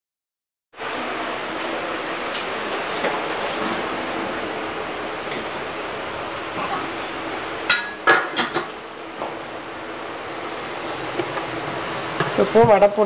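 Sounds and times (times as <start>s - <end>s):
metal kitchenware clinking: 6.6s - 6.9s, 7.7s - 8.7s.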